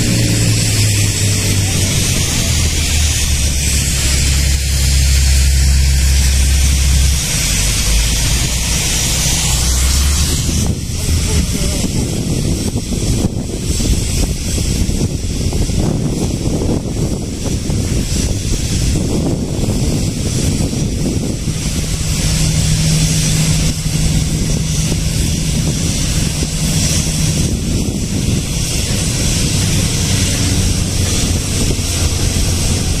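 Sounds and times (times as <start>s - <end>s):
low engine rumble: 0.0s - 33.0s
steady low drone: 0.0s - 33.0s
wind buffeting microphone: 0.0s - 33.0s.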